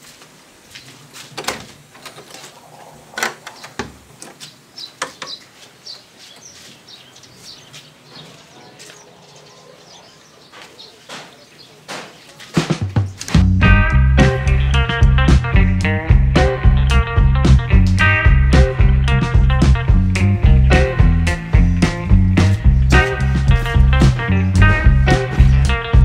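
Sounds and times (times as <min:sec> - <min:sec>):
door opening with clicks: 0:01.3 - 0:04.4
small birds chirping: 0:02.0 - 0:13.4.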